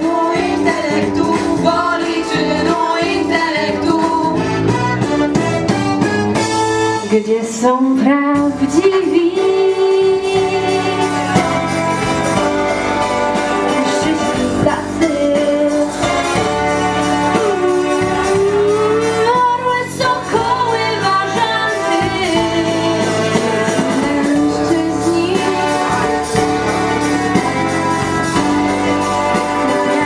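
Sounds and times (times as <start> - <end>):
instrumental backing: 0.0 - 30.0
person singing: 13.3 - 16.4, 17.2 - 27.2, 29.0 - 30.0.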